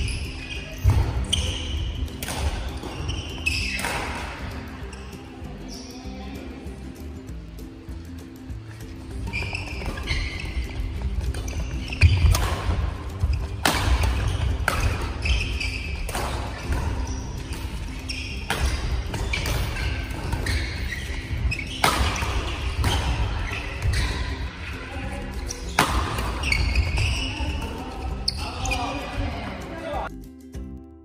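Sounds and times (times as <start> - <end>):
court shoes squeaking and thudding: 0.0 - 6.5, 8.4 - 30.1
rackets striking shuttlecock: 0.8 - 4.8, 9.1 - 24.4, 25.3 - 27.9.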